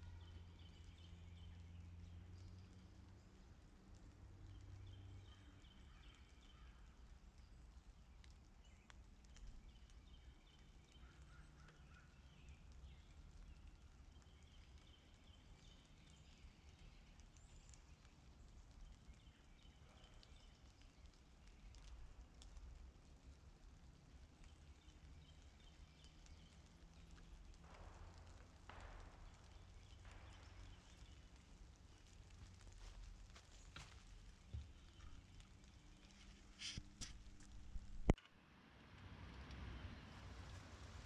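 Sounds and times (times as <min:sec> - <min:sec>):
steady low rumble: 0:26.2 - 0:38.2.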